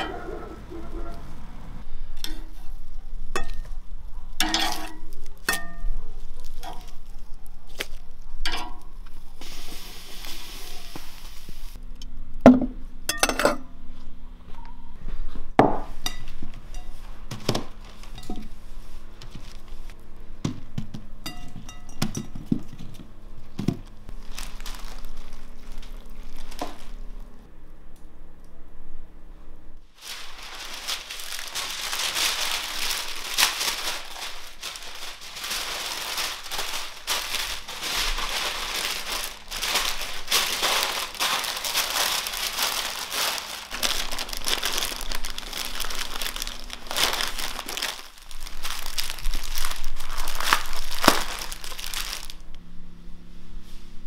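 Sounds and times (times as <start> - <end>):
paper rustle: 24.1 - 27.2, 29.9 - 52.4.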